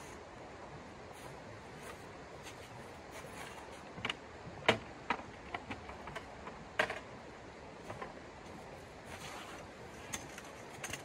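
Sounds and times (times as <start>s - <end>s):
camping gear clicking and knocking: 3.2s - 7.1s, 7.8s - 11.0s.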